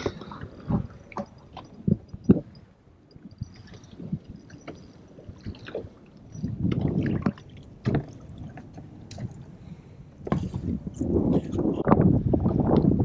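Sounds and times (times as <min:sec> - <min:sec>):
water slapping against hull: 0:00.0 - 0:09.6.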